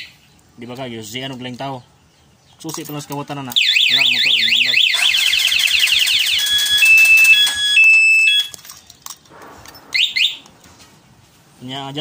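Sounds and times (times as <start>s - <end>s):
alarm siren wailing: 3.6s - 8.6s, 9.9s - 10.5s
alarm beeps: 6.2s - 8.6s, 9.9s - 10.5s.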